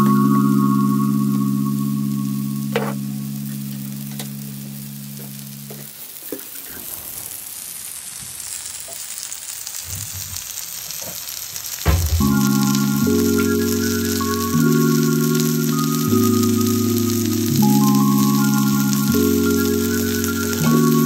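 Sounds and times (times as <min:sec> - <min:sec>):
background music: 0:00.0 - 0:05.6, 0:12.0 - 0:21.0
vegetables frying in oil: 0:01.4 - 0:21.0
oil popping: 0:09.8 - 0:21.0.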